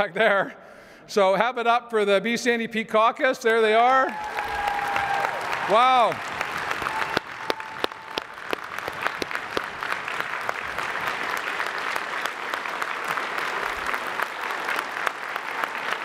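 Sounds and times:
large audience applauding: 3.9s - 16.0s.

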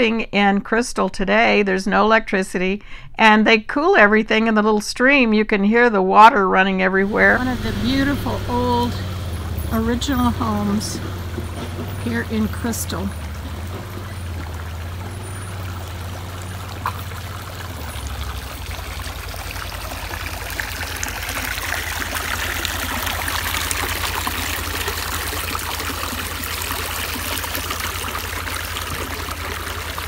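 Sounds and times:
stream water rushing: 7.0s - 30.0s.

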